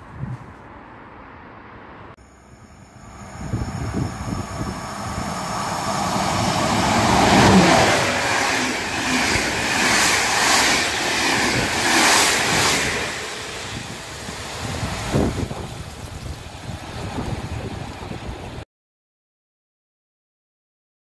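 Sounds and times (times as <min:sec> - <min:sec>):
train wheels rumbling on rail: 0:03.0 - 0:18.6.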